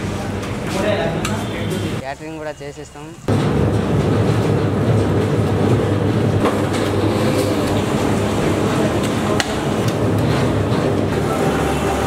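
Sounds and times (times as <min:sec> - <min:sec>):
gas burner rushing: 0:03.3 - 0:12.0.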